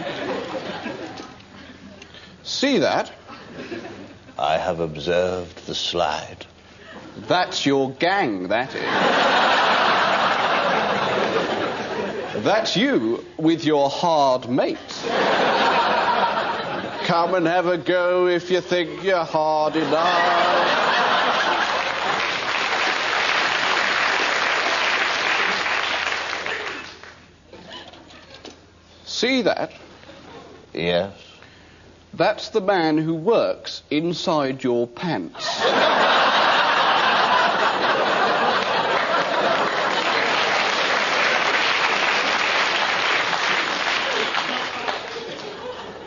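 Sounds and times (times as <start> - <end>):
audience laughter: 0.0 - 1.8, 3.3 - 4.4, 8.7 - 12.5, 15.0 - 17.5, 19.6 - 22.7, 35.4 - 41.4, 43.2 - 46.0
audience applauding: 19.9 - 27.2, 37.0 - 45.8.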